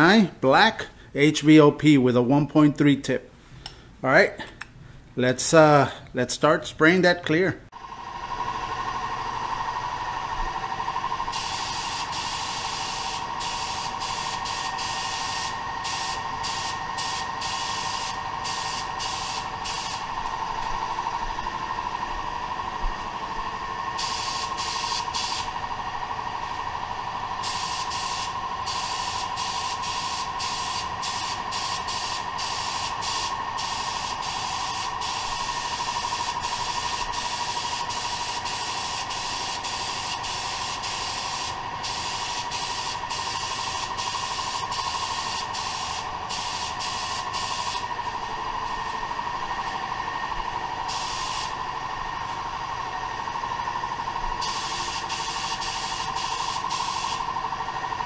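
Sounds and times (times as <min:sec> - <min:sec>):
spray gun hissing: 0:11.3 - 0:20.2, 0:24.0 - 0:25.6, 0:27.4 - 0:49.0, 0:50.8 - 0:51.6, 0:54.4 - 0:57.3.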